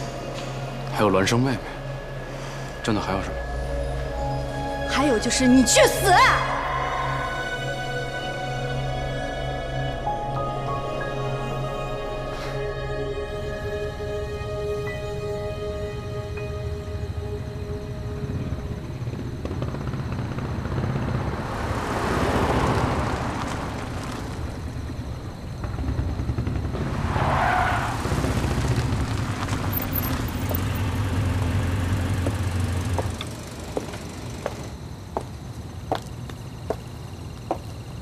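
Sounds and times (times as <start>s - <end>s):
car engine running low: 18.2s - 34.8s.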